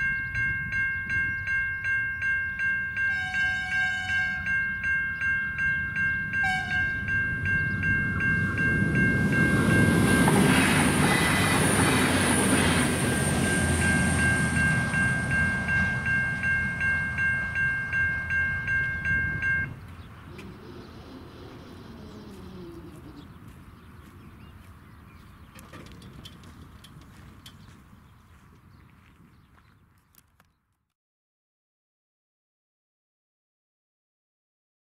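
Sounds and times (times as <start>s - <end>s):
level crossing bells ringing: 0.0s - 20.0s
train rumble and rail noise: 0.0s - 29.3s.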